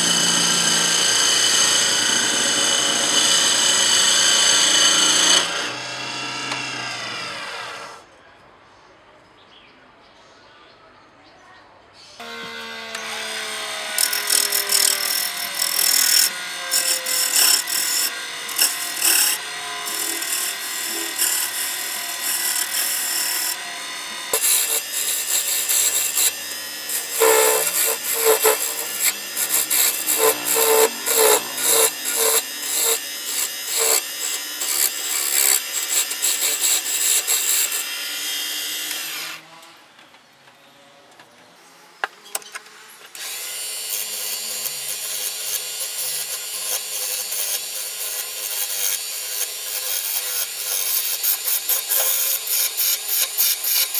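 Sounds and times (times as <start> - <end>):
lathe tool scraping wood: 0.0 - 8.0, 12.2 - 39.4, 43.2 - 53.9
lathe motor hum: 13.0 - 37.5.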